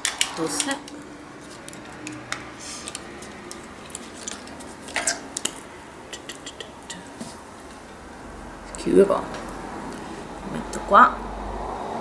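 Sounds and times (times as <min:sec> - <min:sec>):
clicks and rustles of packaging: 0:00.0 - 0:05.7.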